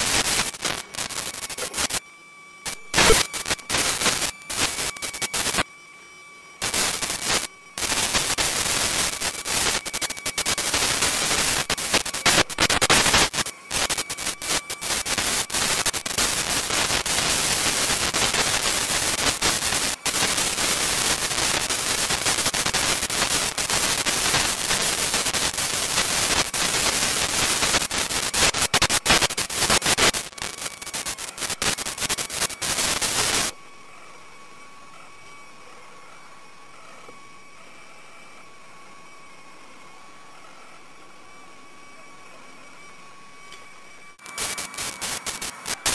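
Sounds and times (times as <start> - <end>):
crackling static with pops: 0.0 - 2.0, 2.6 - 5.7, 6.6 - 33.6, 43.5 - 45.9
faint steady whine: 0.0 - 45.9.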